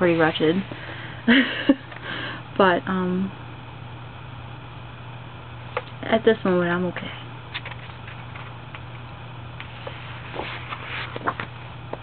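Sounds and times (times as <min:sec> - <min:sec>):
steady low hum: 0:00.0 - 0:12.0
photobook page turning: 0:07.5 - 0:08.9, 0:09.6 - 0:11.6.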